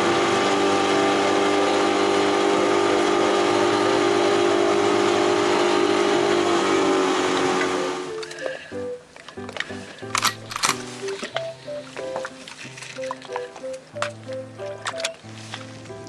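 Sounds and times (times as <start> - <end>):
outboard motor running at full speed: 0.0 - 8.1.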